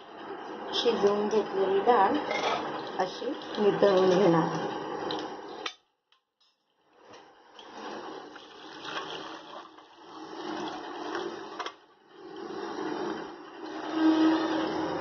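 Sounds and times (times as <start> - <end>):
water pouring through a strainer: 2.7 - 3.8, 7.5 - 15.0.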